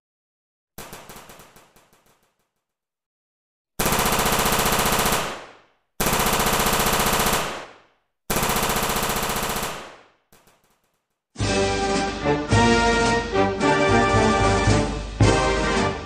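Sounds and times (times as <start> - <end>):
machine-gun fire: 0.8 - 2.3, 3.8 - 10.8.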